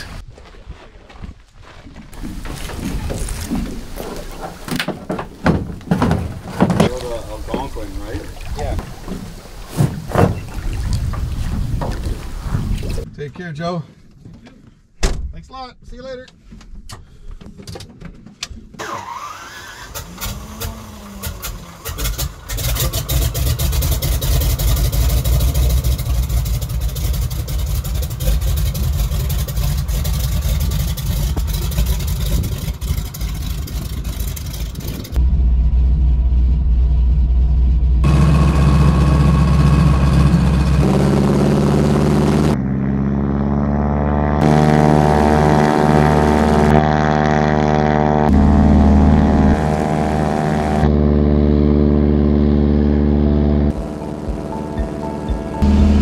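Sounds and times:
plane engine cranking and running: 0:18.7 - 0:56.0
propeller noise: 0:18.7 - 0:56.0.

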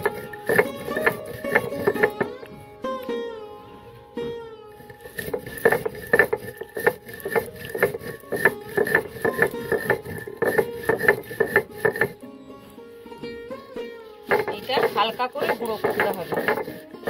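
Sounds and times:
stone roller crushing spices: 0:00.0 - 0:02.6, 0:04.8 - 0:12.2, 0:14.2 - 0:17.0.

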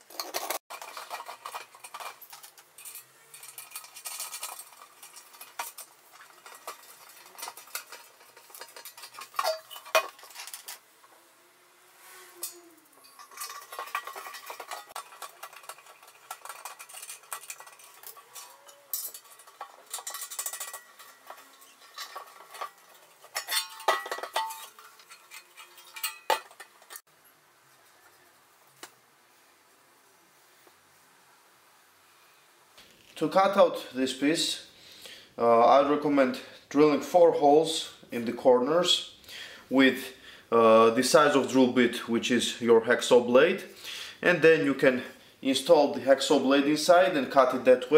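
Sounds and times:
metal containers clinking: 0:00.0 - 0:10.9, 0:12.2 - 0:27.1
ringing metal clanks: 0:00.3 - 0:10.8, 0:12.4 - 0:27.0.

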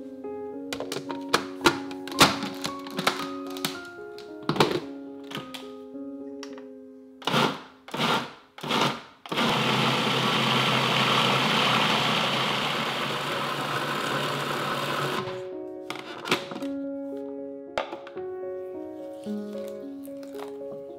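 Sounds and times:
food processor motor blending: 0:07.2 - 0:15.4.

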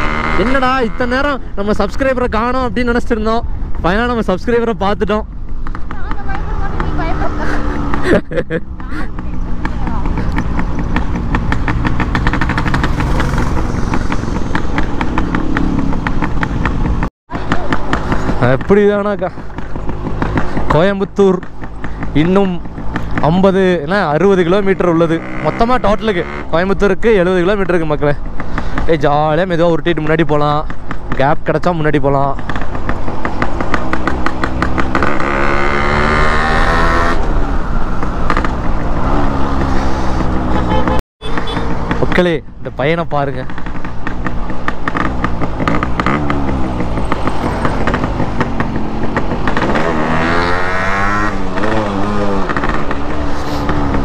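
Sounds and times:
two-stroke motorcycle engine running: 0:05.2 - 0:54.0.

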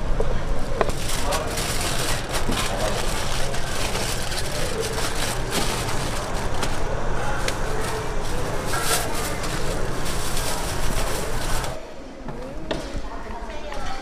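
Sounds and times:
aluminium foil crinkling: 0:00.6 - 0:11.8
plastic bag rustling: 0:00.6 - 0:11.8.

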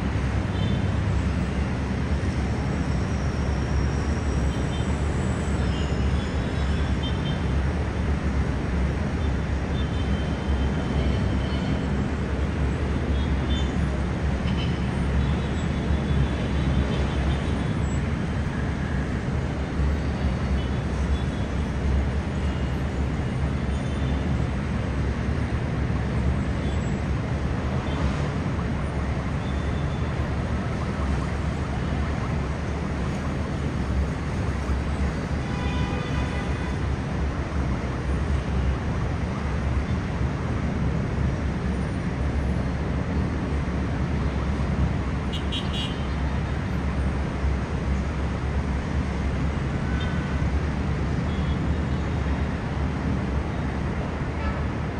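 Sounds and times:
distant city traffic rumble: 0:00.0 - 0:54.9.

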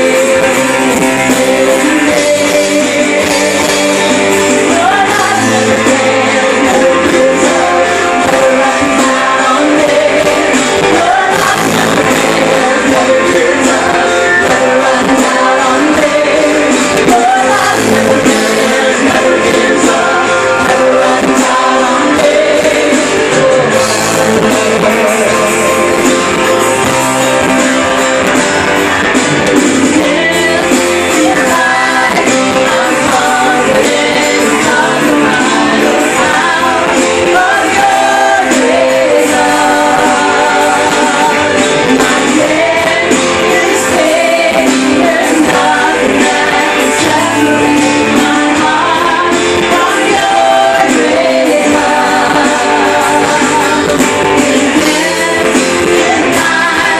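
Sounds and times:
woman singing: 0:00.0 - 0:25.3, 0:29.8 - 0:56.9
drums: 0:00.0 - 0:56.9
keyboard: 0:00.0 - 0:56.9.

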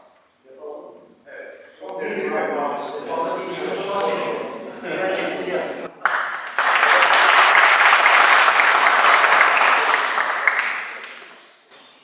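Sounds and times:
audience applauding: 0:06.0 - 0:11.4.

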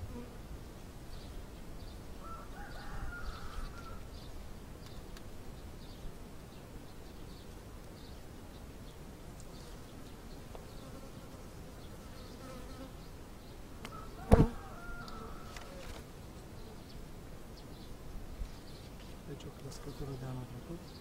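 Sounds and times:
honeybees buzzing: 0:09.4 - 0:13.1, 0:13.8 - 0:17.5.

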